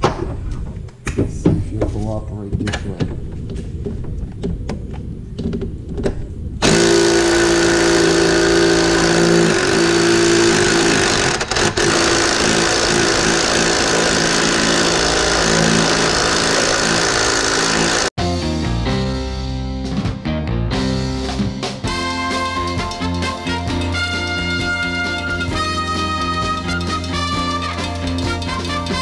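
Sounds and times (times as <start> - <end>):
impact wrench hammering: 6.6 - 18.1.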